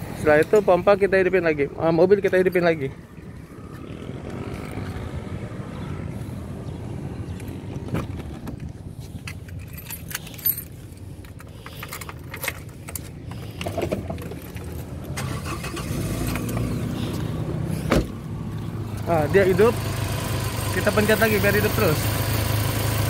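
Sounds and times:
car engine cranking and starting: 0:14.1 - 0:17.8.

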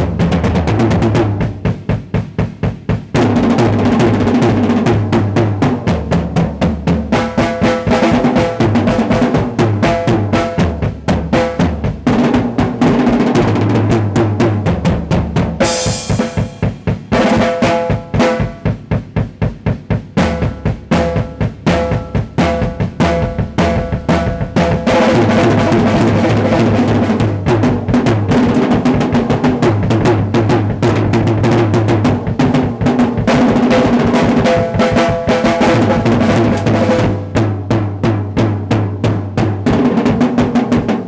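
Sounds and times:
drum kit playing: 0:00.0 - 0:41.0
cymbal crash: 0:15.6 - 0:18.7.

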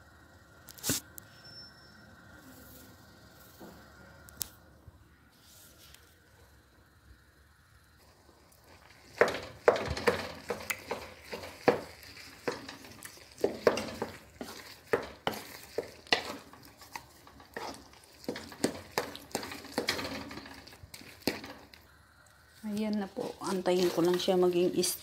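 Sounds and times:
wooden spatula scraping a wok: 0:08.6 - 0:21.8, 0:22.8 - 0:25.0.

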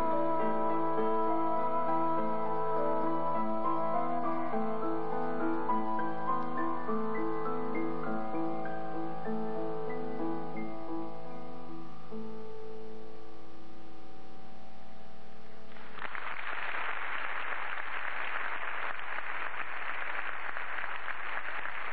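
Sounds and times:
instruments holding a chord: 0:00.0 - 0:15.6
audience applause: 0:15.7 - 0:21.9.

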